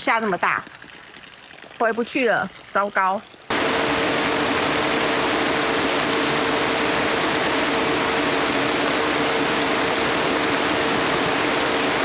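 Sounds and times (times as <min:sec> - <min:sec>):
heavy rain pouring: 0:03.5 - 0:12.0.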